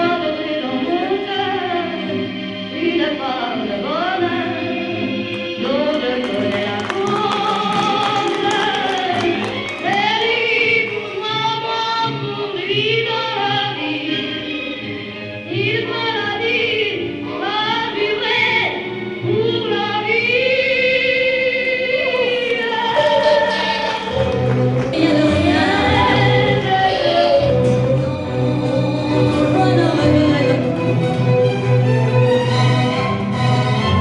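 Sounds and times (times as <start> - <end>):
choir singing held phrases: 21.6 - 30.6.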